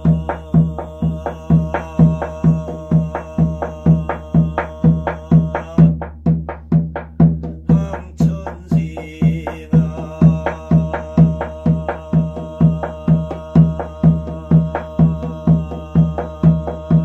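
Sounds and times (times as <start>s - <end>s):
drum beaten with padded mallet: 0.0s - 17.0s.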